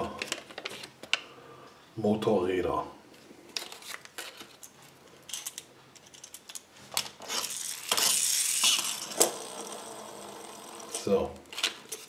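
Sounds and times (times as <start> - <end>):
toy spring motor whirring: 7.2 - 11.3.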